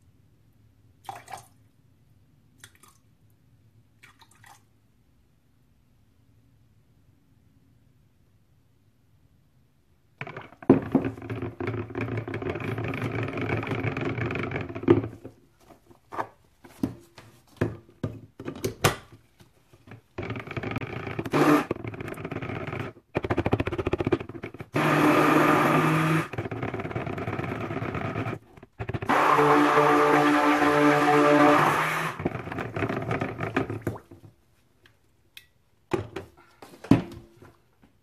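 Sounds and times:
stick blender whirring: 10.2s - 15.1s, 20.2s - 33.7s.

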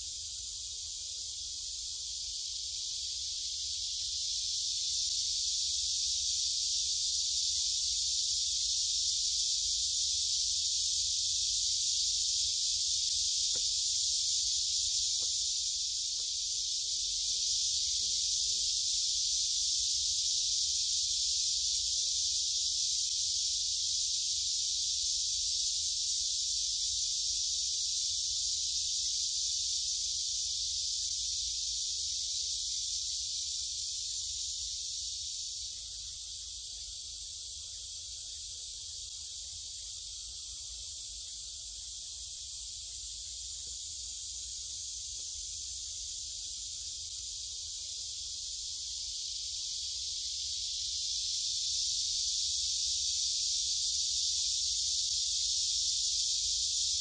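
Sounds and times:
cicadas singing: 0.0s - 57.0s.

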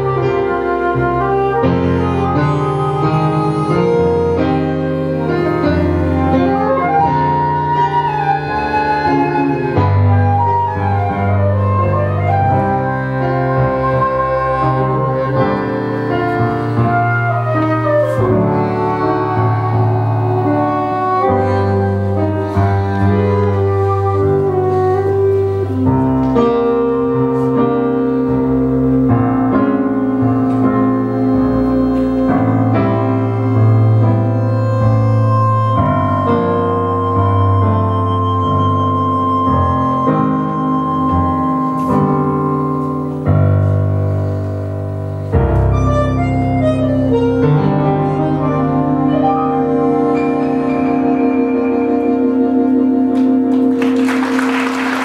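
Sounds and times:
piano accompaniment: 0.0s - 55.0s
sliding sustained melody: 0.0s - 55.0s.

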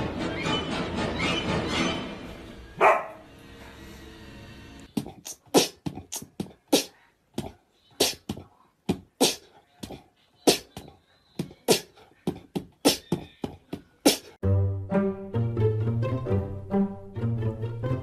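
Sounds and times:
beatbox mouth percussion: 4.9s - 14.4s.

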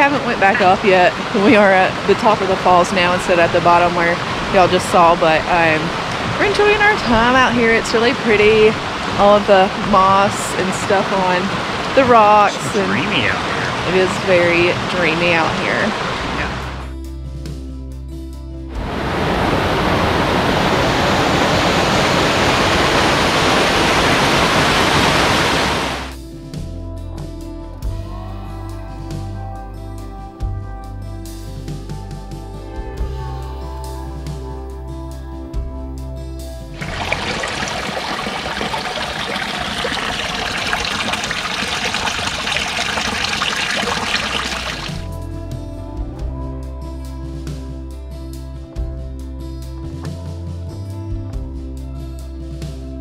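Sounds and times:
water rushing over rock: 0.0s - 16.8s, 18.8s - 26.2s, 36.8s - 45.1s.

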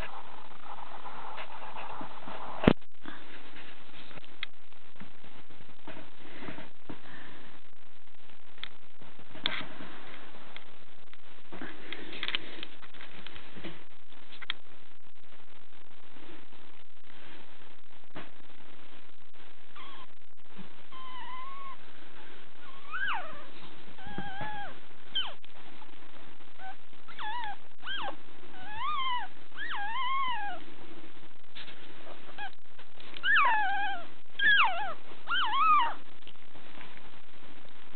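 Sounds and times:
puppy crying in high squeals: 19.8s - 20.1s, 20.9s - 21.8s, 22.7s - 25.4s, 27.1s - 30.6s, 33.2s - 36.0s.

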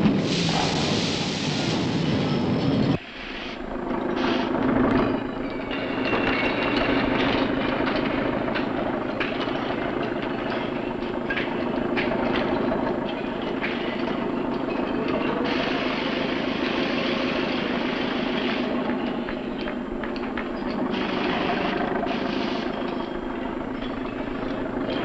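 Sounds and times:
clattering machinery: 0.0s - 25.0s
machine running with low hum: 0.2s - 25.0s
metal clanks: 3.9s - 25.0s.

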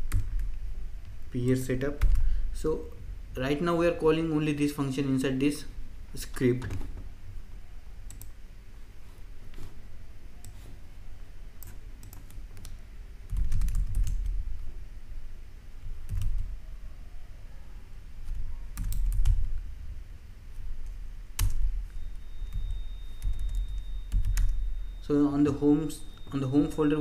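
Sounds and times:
keyboard typing clicks: 8.1s - 8.4s, 20.8s - 22.0s, 23.2s - 24.6s.

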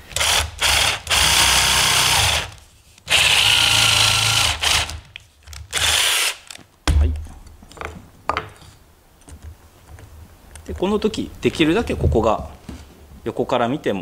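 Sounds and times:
power drill boring into wood: 0.1s - 5.0s, 5.7s - 6.6s.

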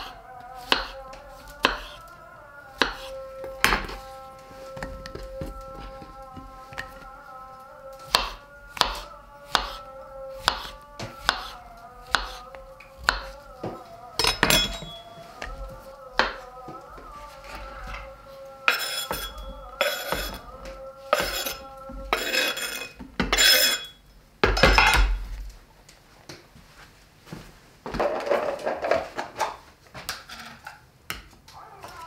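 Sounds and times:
knife chopping on cutting board: 0.6s - 1.0s, 1.6s - 2.0s, 2.8s - 4.0s, 8.0s - 9.8s, 10.4s - 15.0s, 18.7s - 20.4s, 21.1s - 22.6s
kitchen utensils clattering: 14.2s - 15.4s, 18.7s - 20.5s, 21.1s - 25.2s.

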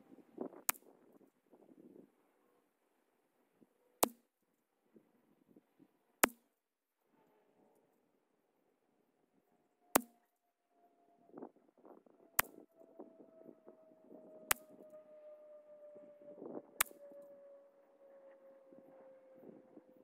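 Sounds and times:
faint hum falling in pitch: 9.7s - 20.0s.

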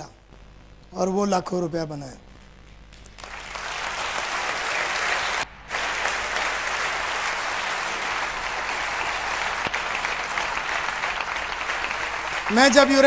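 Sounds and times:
audience applause: 3.2s - 13.0s.

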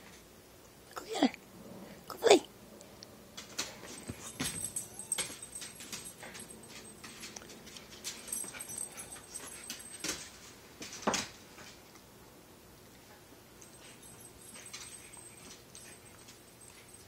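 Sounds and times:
dogs whimpering: 4.2s - 5.6s
small dogs yipping: 4.2s - 5.9s.

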